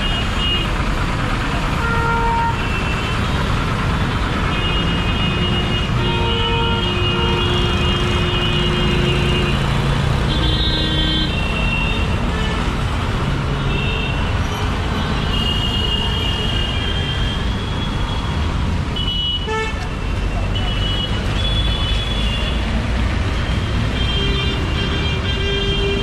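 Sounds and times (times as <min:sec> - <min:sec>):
heavy road traffic: 0:00.0 - 0:26.0
vehicle horns honking: 0:01.8 - 0:03.3, 0:04.5 - 0:12.7, 0:19.0 - 0:22.7, 0:23.4 - 0:26.0.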